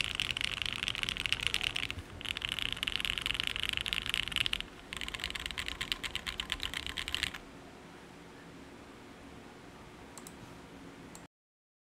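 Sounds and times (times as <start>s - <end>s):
fast mechanical keyboard typing: 0.0s - 7.4s.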